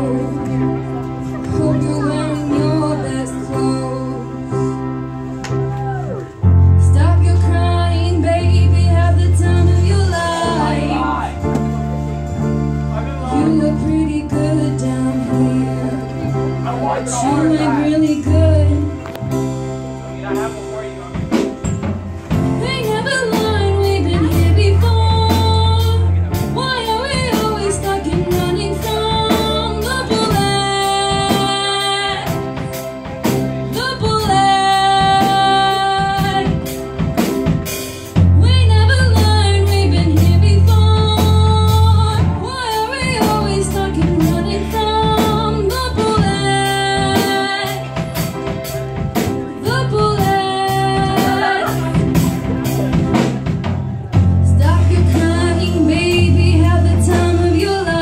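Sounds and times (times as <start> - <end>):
deep bass notes: 0.0 - 58.0
piano and keyboard: 0.0 - 58.0
woman and man singing duet: 6.9 - 11.3, 49.7 - 52.0
drum beat: 50.2 - 54.5.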